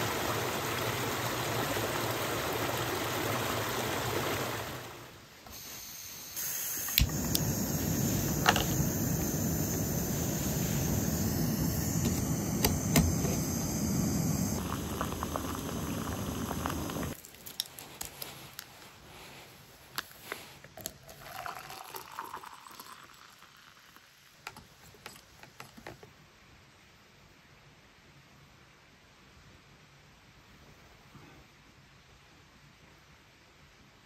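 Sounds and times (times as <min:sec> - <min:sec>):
gas stove burning with a hiss: 0:05.4 - 0:17.2
stove clicks: 0:06.8 - 0:14.6
water poured into a mug: 0:14.6 - 0:17.2, 0:20.8 - 0:24.1.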